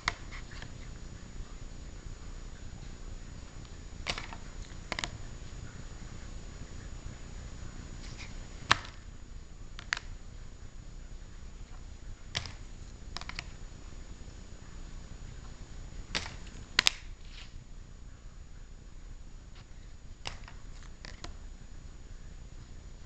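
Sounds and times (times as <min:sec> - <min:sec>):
low background hiss: 0:00.0 - 0:23.0
plastic card holders clicking: 0:04.0 - 0:05.2, 0:09.8 - 0:10.1, 0:12.3 - 0:12.6, 0:13.2 - 0:13.6, 0:16.1 - 0:17.1, 0:20.2 - 0:21.4.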